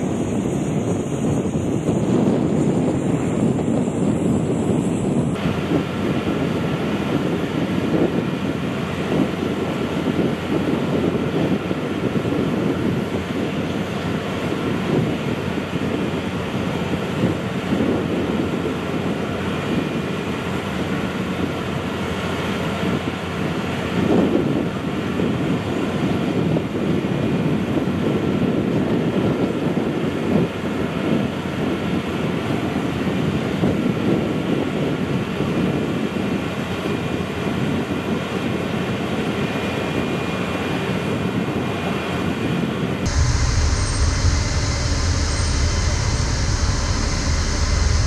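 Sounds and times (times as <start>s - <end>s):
wind buffeting microphone: 0.0s - 20.4s, 42.3s - 48.0s
engine rumble: 43.1s - 48.0s
faint steady whine: 43.1s - 48.0s.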